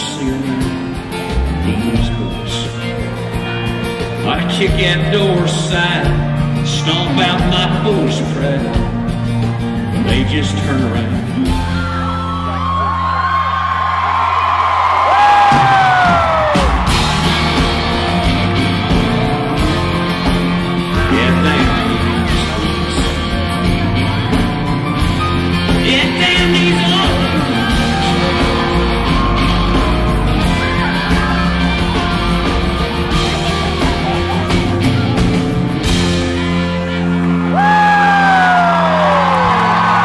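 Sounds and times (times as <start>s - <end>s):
crowd yelling and whooping: 0.0s - 4.3s, 8.9s - 10.5s, 11.4s - 40.0s
country-rock band playing: 0.0s - 40.0s
loud falling yell: 11.9s - 17.5s, 37.5s - 40.0s.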